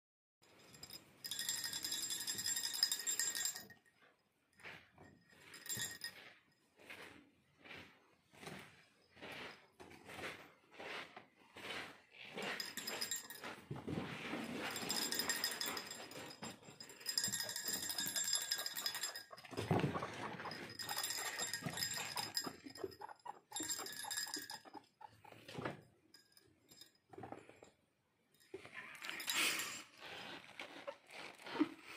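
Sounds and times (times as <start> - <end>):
small bell jingling: 0.6 - 3.8, 5.1 - 6.2, 12.4 - 13.6, 14.4 - 27.0, 28.4 - 29.9
wood being gnawed: 29.1 - 31.9.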